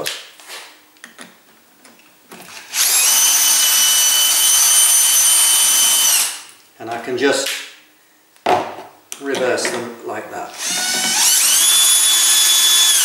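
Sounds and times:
cordless drill whine: 0:02.5 - 0:06.5, 0:10.6 - 0:13.0.

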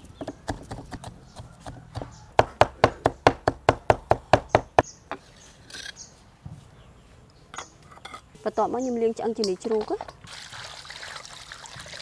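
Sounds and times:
cleaver chopping on wooden board: 0:00.2 - 0:04.8.

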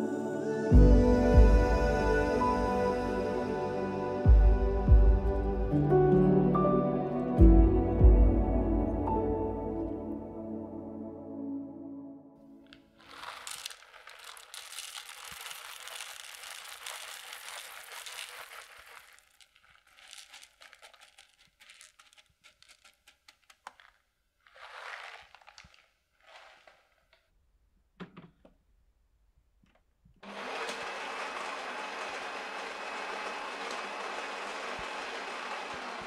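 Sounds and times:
coffee beans rattling in glass bowl: 0:13.0 - 0:26.8.

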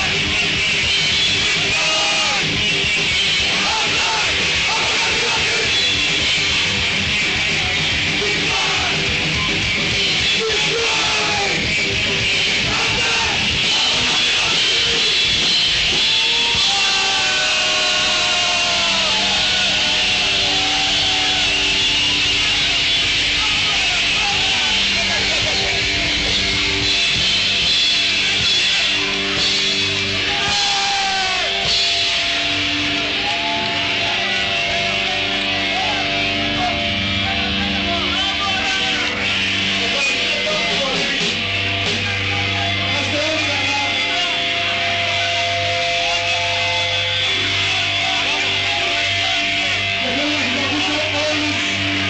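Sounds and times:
thrash metal band playing live: 0:00.0 - 0:52.0.

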